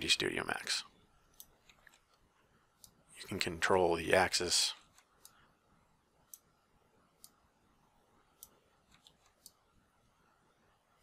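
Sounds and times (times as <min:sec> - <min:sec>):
faint mouse clicks: 0:08.4 - 0:09.6.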